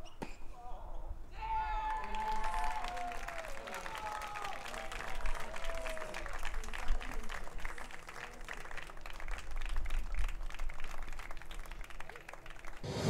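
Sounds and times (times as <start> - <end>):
crowd applauding: 1.8 - 13.0.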